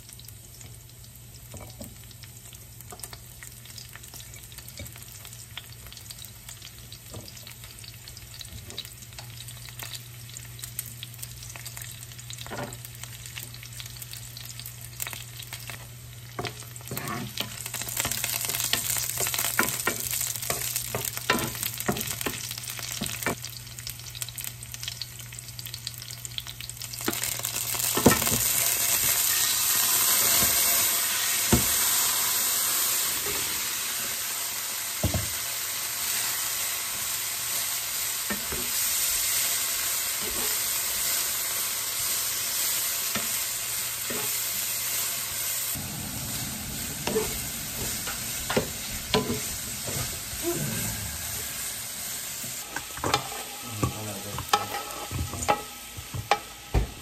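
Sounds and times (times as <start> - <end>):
food sizzling in hot oil: 0.0 - 57.0
spatula scraping a pan: 16.8 - 20.6, 44.1 - 44.4, 52.6 - 55.7.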